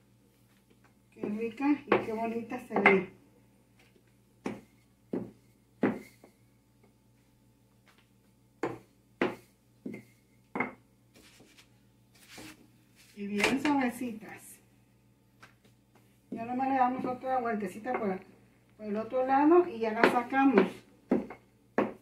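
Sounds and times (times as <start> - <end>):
rolling pin knocking on counter: 4.4 - 6.1, 8.6 - 10.0, 19.9 - 22.0.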